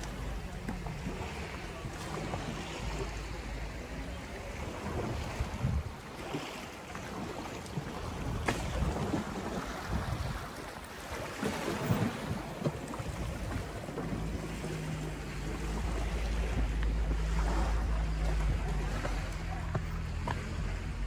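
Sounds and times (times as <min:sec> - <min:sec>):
waves lapping pebbly shore: 0:00.0 - 0:21.0
wind on microphone: 0:04.5 - 0:06.4, 0:07.2 - 0:19.7
low steady hum: 0:12.1 - 0:21.0.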